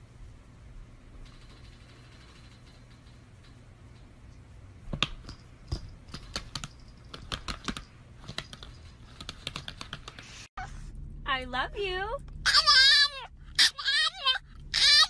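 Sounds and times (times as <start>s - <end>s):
clicks and taps on laptop: 4.9s - 10.2s.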